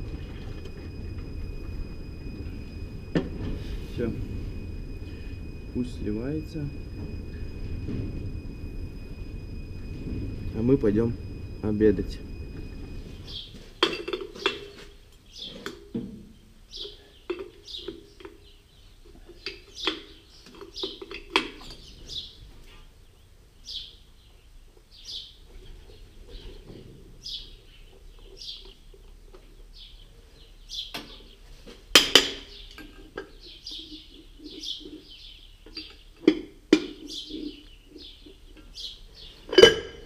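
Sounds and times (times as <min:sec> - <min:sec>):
small birds chirping: 0:12.2 - 0:31.6, 0:32.4 - 0:39.6.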